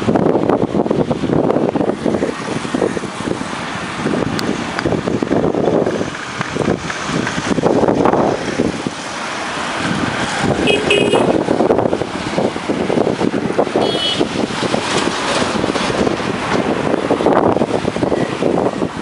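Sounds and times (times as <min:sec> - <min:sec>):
traffic rumbling over bridge: 0:00.0 - 0:19.0
short high horn beeps: 0:10.7 - 0:11.3, 0:13.8 - 0:14.3.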